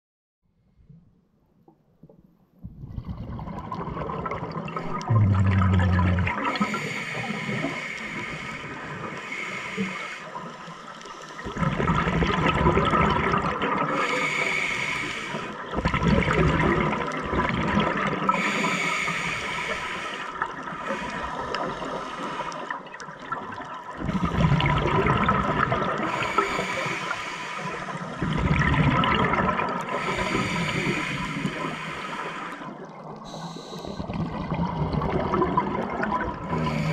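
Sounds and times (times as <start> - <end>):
exhaled bubbles rumbling: 2.6 - 6.8, 11.4 - 14.0, 15.6 - 18.5, 22.7 - 26.6, 27.8 - 31.7, 32.6 - 36.9
hissing regulator inhalations: 4.8 - 11.6, 14.0 - 15.6, 18.4 - 22.8, 26.0 - 28.2, 29.9 - 34.2, 36.5 - 36.9.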